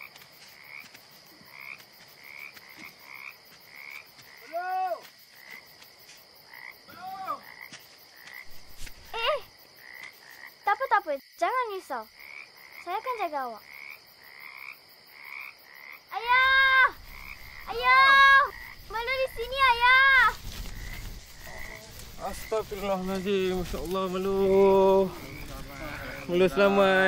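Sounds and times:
frogs croaking: 0:00.0 - 0:27.0
loud croaks with rising pitch: 0:13.7 - 0:19.7.

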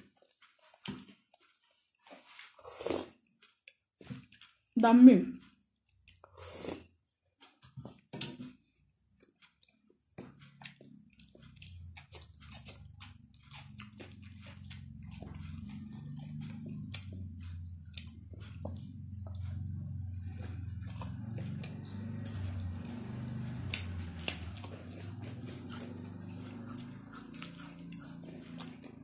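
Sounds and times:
person chewing food: 0:00.0 - 0:04.8, 0:05.4 - 0:29.0
low steady hum: 0:10.2 - 0:29.0.

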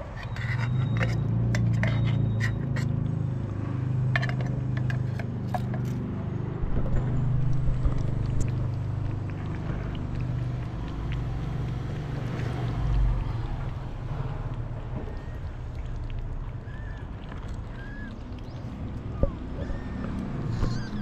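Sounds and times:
tin can scraping on plate: 0:00.0 - 0:03.0, 0:04.1 - 0:06.0
low hum: 0:00.0 - 0:21.0
cats chewing and licking: 0:06.8 - 0:21.0.

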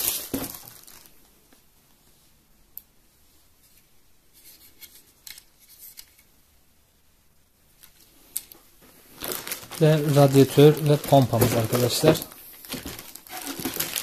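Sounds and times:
plastic bag crinkling: 0:00.0 - 0:01.3, 0:09.0 - 0:14.0
plastic rustles: 0:00.0 - 0:01.4, 0:07.9 - 0:14.0.

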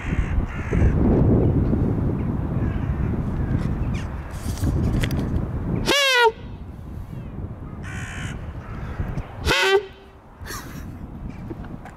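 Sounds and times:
crows cawing: 0:00.0 - 0:01.0, 0:07.8 - 0:09.0.

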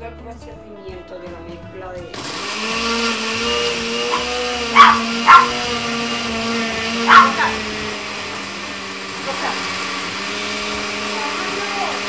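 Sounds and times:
blender motor hum: 0:02.1 - 0:12.0
small dog barking: 0:04.1 - 0:05.7, 0:07.0 - 0:07.7.

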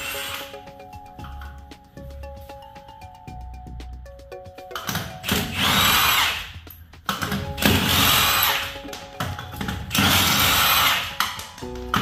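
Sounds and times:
background music: 0:00.0 - 0:12.0
power tool spinning lug nuts: 0:05.3 - 0:06.5, 0:09.9 - 0:11.1.

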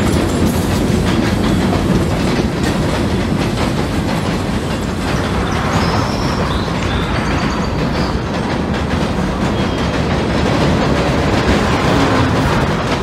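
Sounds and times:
model train wheels clicking: 0:00.0 - 0:13.0
high wheel squeals: 0:04.8 - 0:10.4.

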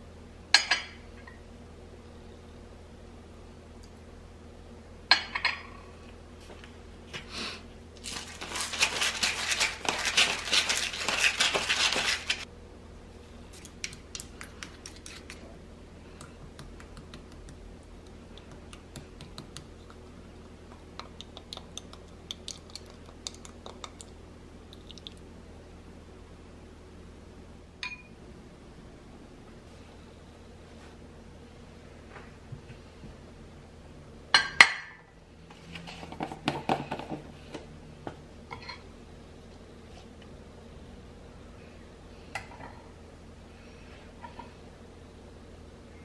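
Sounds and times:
spoons stirring in glass bowl: 0:08.1 - 0:12.5.

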